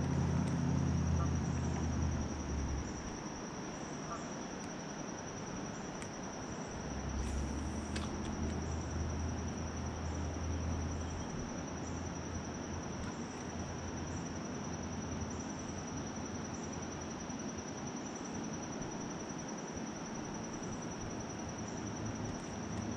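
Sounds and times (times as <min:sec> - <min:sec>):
low rumble: 0:00.0 - 0:03.2
constant hiss: 0:00.0 - 0:22.9
insects trilling: 0:00.0 - 0:22.9.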